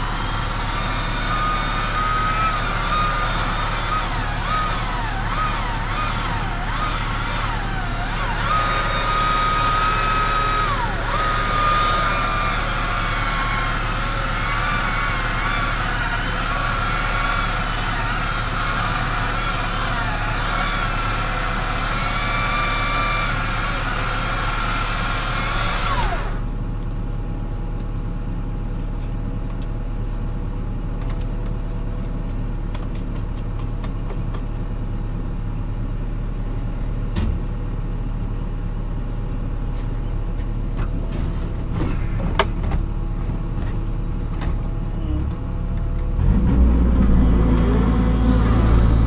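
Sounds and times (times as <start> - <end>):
machine engine running: 0.0 - 26.7, 39.7 - 49.0
whine swooping in pitch: 46.2 - 49.0.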